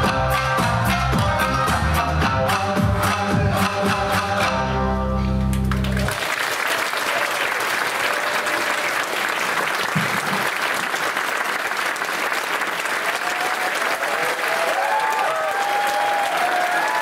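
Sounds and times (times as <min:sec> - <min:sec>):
audience applauding: 0:05.5 - 0:17.0.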